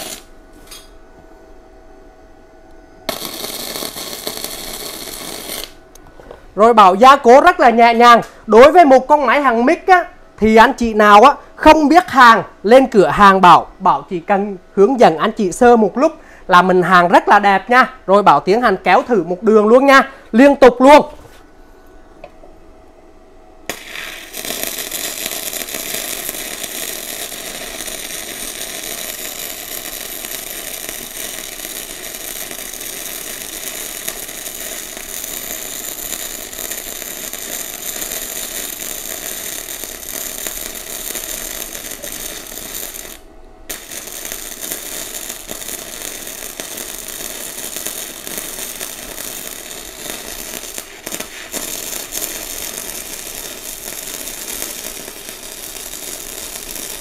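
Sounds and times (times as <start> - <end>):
welding arc crackling and sputtering: 0.0 - 0.9, 3.1 - 14.3, 23.6 - 57.0.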